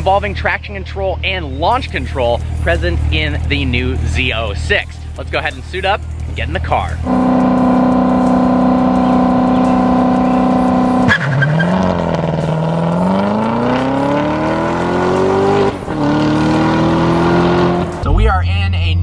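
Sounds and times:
car engine revving and accelerating: 6.9s - 18.3s.

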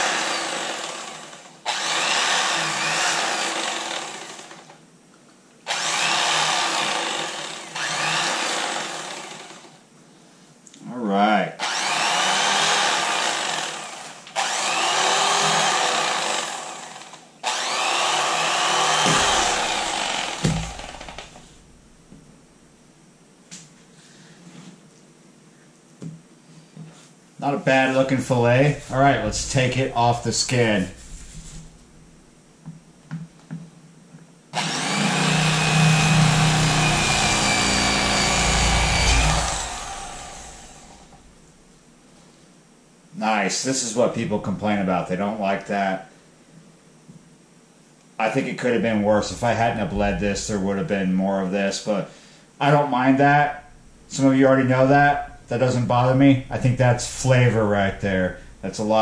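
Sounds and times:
electric knife whining: 0.0s - 4.7s, 5.7s - 9.8s, 11.6s - 21.7s, 34.6s - 41.4s
low thumps: 18.9s - 22.3s, 28.6s - 32.2s, 35.2s - 41.6s.

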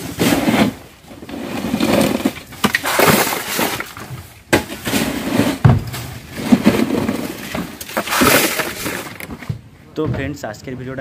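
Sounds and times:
crushed ice pouring: 1.3s - 4.0s, 6.4s - 9.2s.

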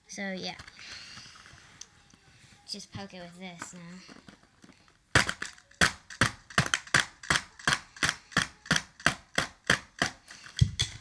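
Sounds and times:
screwdriver hitting cardboard box: 5.2s - 11.0s.

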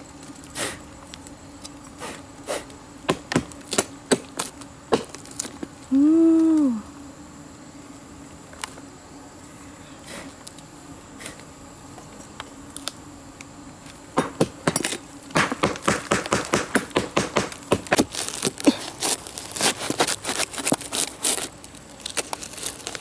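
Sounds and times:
blade hacking rotting log: 14.2s - 21.3s.

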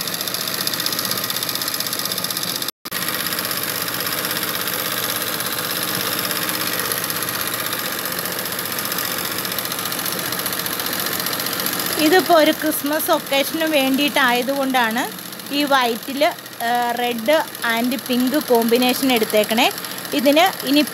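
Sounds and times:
sewing machine running: 0.0s - 20.9s.

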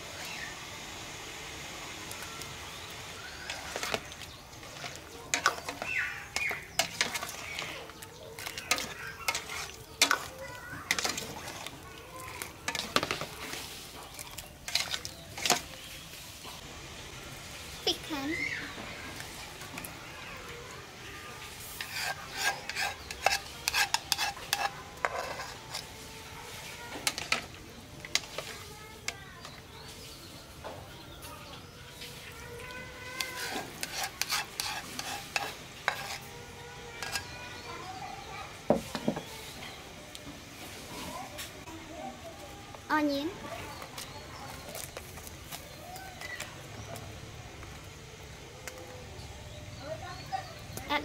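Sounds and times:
ladle stirring soup: 2.1s - 16.6s, 18.6s - 30.5s, 31.9s - 37.8s
ladle scraping against bowl: 3.4s - 15.7s, 21.6s - 27.5s, 33.1s - 36.4s, 37.0s - 37.4s.

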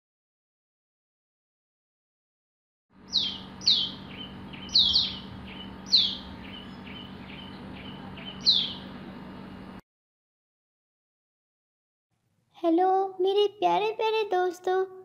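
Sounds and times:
birds chirping: 3.0s - 9.8s.

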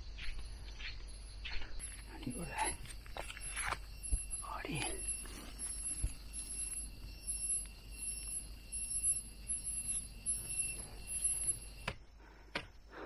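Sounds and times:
insect low buzz: 0.0s - 13.0s
insect high thin trill: 1.5s - 11.9s.

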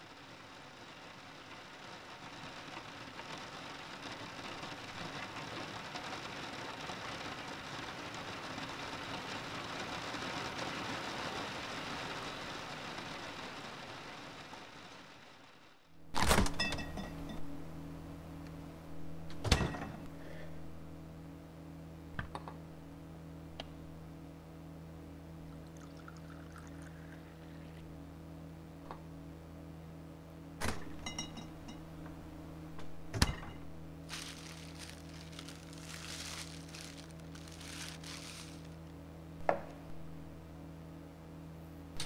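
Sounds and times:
steady low hum: 11.9s - 42.0s.

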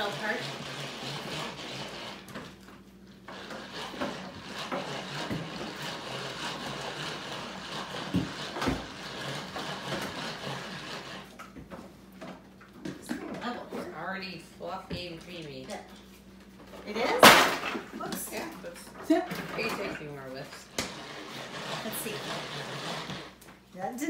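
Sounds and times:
whisk whirring: 0.0s - 2.6s, 3.2s - 11.5s, 19.3s - 23.5s.

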